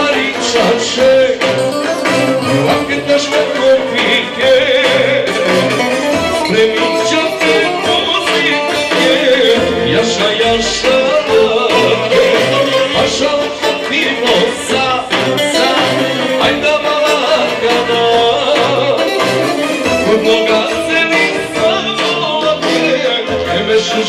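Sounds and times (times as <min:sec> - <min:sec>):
live band playing dance music: 0:00.0 - 0:24.0
person singing: 0:00.0 - 0:24.0.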